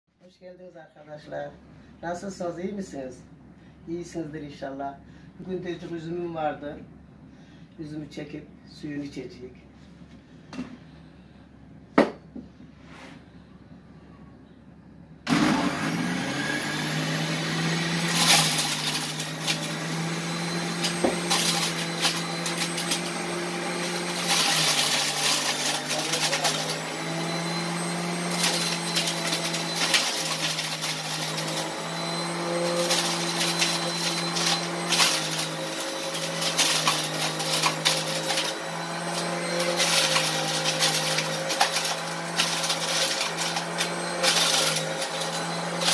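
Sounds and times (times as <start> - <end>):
electric juicer motor running: 15.3 - 45.9.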